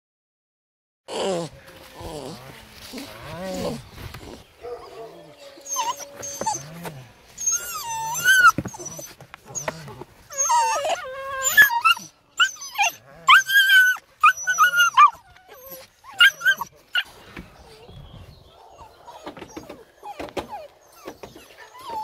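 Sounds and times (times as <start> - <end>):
puppy whining and yelping: 4.1 - 17.9, 18.7 - 22.0.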